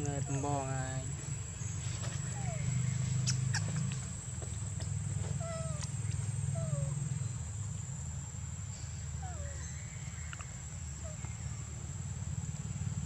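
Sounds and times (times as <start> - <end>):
macaques meow-like calls: 2.3 - 3.9, 5.4 - 5.9, 6.5 - 7.1, 9.2 - 10.2.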